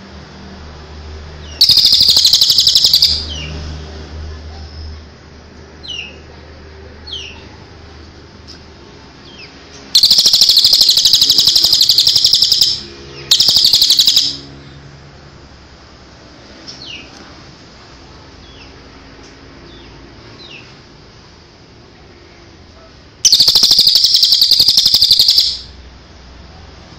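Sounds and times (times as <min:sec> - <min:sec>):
bird rattling call: 0:01.6 - 0:03.3, 0:10.0 - 0:14.5, 0:23.2 - 0:25.7
short downward chirps: 0:01.6 - 0:03.5, 0:10.0 - 0:14.5, 0:23.2 - 0:25.8.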